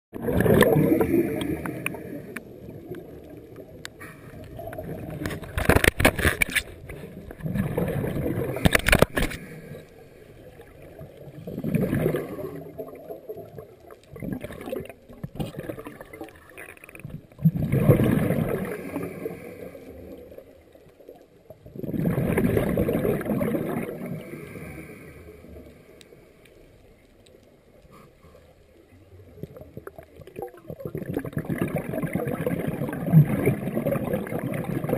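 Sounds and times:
exhaled bubbles gurgling: 0:00.1 - 0:25.9, 0:28.9 - 0:34.9
scuba regulator breathing underwater: 0:00.2 - 0:02.5, 0:04.0 - 0:04.7, 0:07.1 - 0:10.4, 0:17.7 - 0:20.1, 0:23.9 - 0:26.4.

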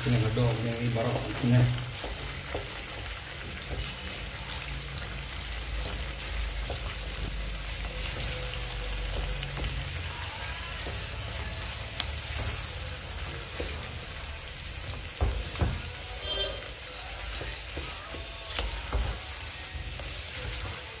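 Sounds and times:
food sizzling in oil: 0:00.0 - 0:21.0
spatula scraping a pan: 0:01.0 - 0:14.9, 0:16.1 - 0:21.0.

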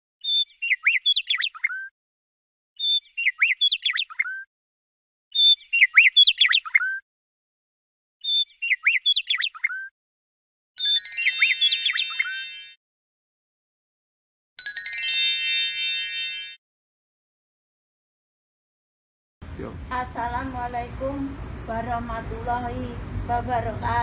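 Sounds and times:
bird chirping and whistling: 0:00.2 - 0:01.9, 0:02.8 - 0:04.5, 0:05.3 - 0:07.0, 0:08.2 - 0:09.9, 0:11.2 - 0:12.8
bright chime: 0:10.8 - 0:12.8, 0:14.6 - 0:16.6.

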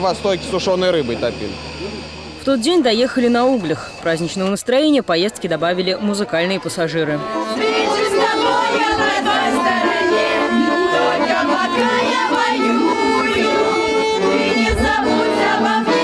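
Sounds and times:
button accordion playing: 0:00.0 - 0:16.0
women singing along: 0:07.2 - 0:16.0.

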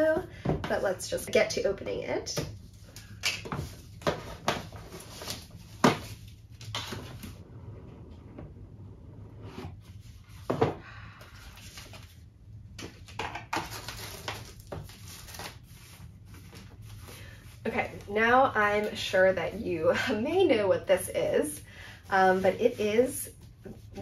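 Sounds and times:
packaging rustling: 0:12.8 - 0:17.0.

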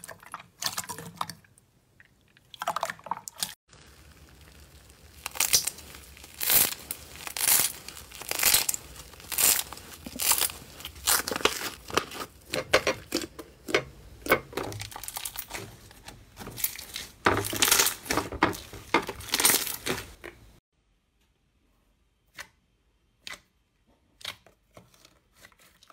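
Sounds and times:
slime crackling and squelching: 0:03.5 - 0:20.6.

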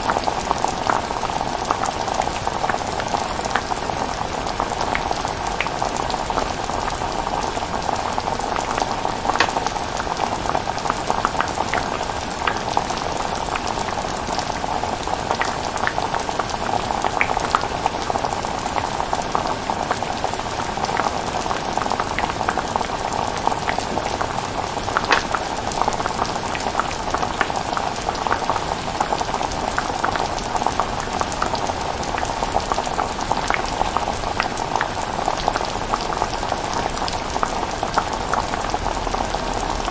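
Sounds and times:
pot bubbling and popping: 0:04.8 - 0:12.6, 0:22.2 - 0:28.5.

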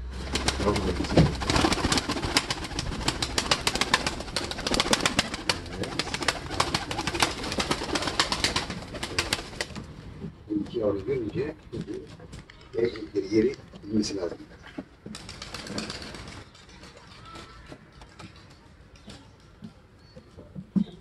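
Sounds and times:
pigeon wings flapping: 0:00.1 - 0:09.9, 0:10.5 - 0:13.0, 0:15.0 - 0:18.6.

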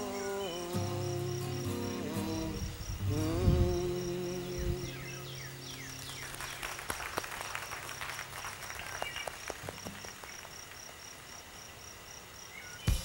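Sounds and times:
cricket chirping: 0:00.0 - 0:13.0
light crackling rustles: 0:05.6 - 0:11.0.

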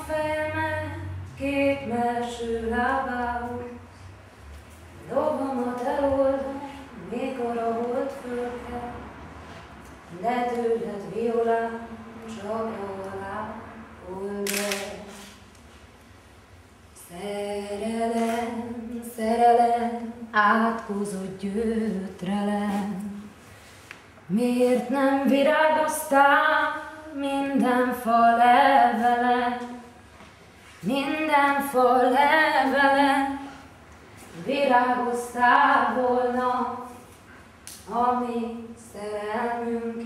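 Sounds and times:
woman singing unaccompanied: 0:00.0 - 0:03.9, 0:05.0 - 0:09.1, 0:10.1 - 0:15.2, 0:17.0 - 0:23.3, 0:24.3 - 0:30.0, 0:30.8 - 0:33.6, 0:34.4 - 0:37.0, 0:37.8 - 0:40.0.

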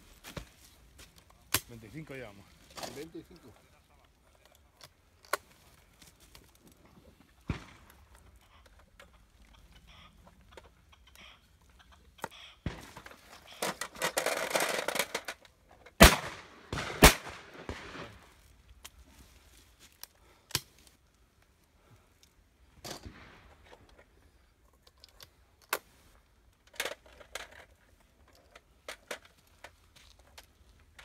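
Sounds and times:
faint sharp cracks: 0:07.3 - 0:09.2
shotgun shots: 0:07.5 - 0:08.0, 0:16.0 - 0:18.3.

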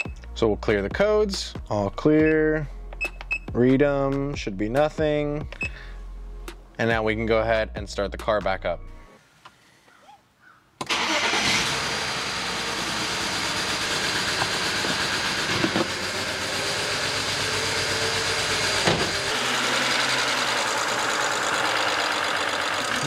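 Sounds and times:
car engine starting and idling: 0:10.8 - 0:23.0.

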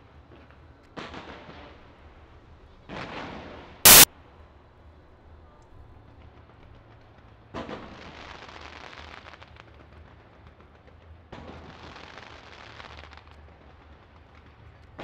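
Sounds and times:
fireworks bangs: 0:03.9 - 0:04.1
fireworks crackling: 0:03.9 - 0:04.1.

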